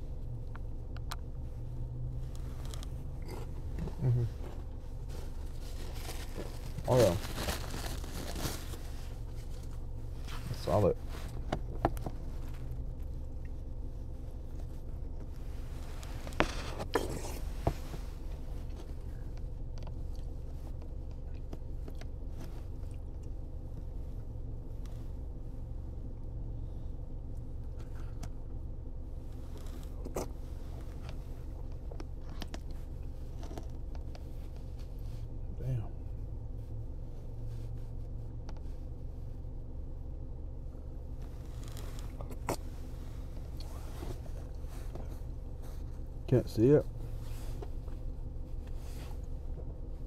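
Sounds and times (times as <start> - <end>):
low hum inside car cabin: 0.0 - 50.0
quiet chewing: 16.0 - 23.4, 29.4 - 34.8, 41.4 - 45.8.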